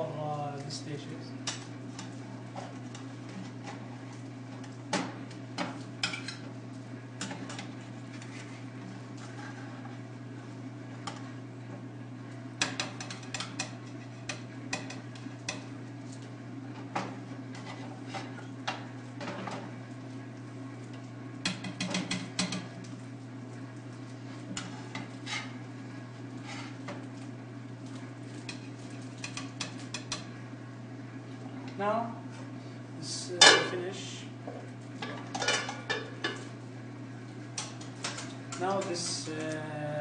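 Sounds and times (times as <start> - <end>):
steady low hum: 0.0 - 40.0
metal utensil scraping pan and plate: 24.6 - 25.6.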